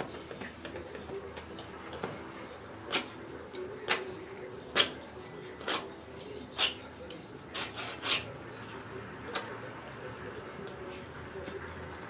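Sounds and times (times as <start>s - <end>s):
palette knife scraping canvas: 7.5s - 8.3s.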